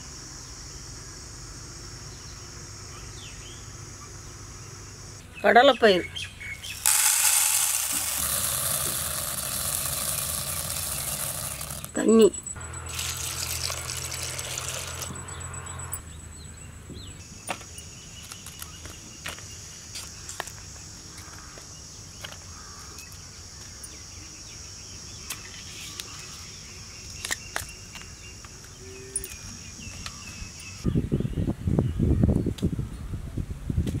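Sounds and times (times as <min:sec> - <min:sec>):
high insect drone: 0:00.0 - 0:05.2, 0:06.7 - 0:16.6
loud rough noise: 0:06.8 - 0:16.0
water pouring into clay pot: 0:12.9 - 0:15.1.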